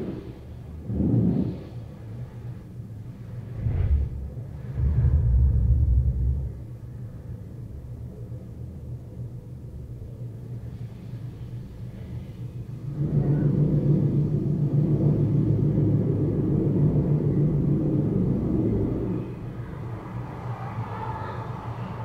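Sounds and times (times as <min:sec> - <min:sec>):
low outdoor rumble: 0:00.0 - 0:22.0.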